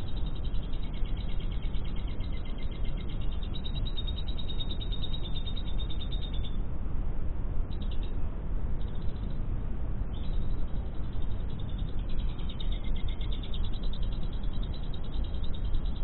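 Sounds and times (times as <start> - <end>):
lovebird chattering trill: 0.0 - 6.6, 10.1 - 16.0
steady low rumble: 0.0 - 16.0.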